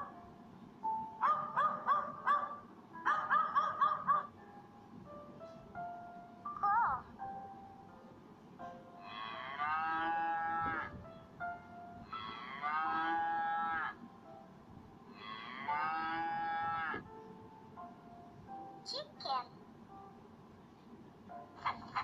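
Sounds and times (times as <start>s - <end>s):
cow mooing: 9.0s - 10.9s, 12.1s - 14.0s, 15.1s - 17.0s.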